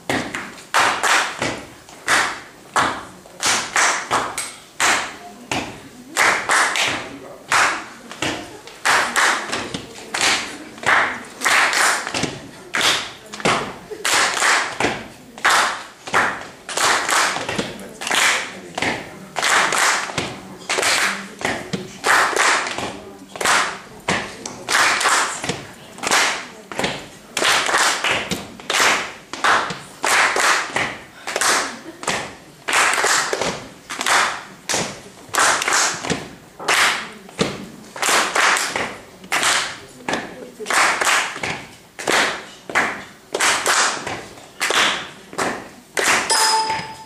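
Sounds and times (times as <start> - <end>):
group clapping hands: 0.0 - 47.0
sticks striking in rhythm: 46.2 - 47.0.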